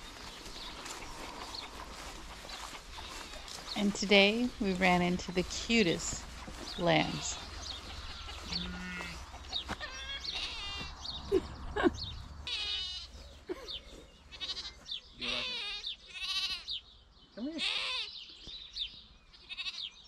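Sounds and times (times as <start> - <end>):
lambs bleating: 2.9 - 3.6, 6.8 - 11.0, 12.4 - 13.2, 14.3 - 16.8, 17.4 - 18.1, 19.4 - 20.0.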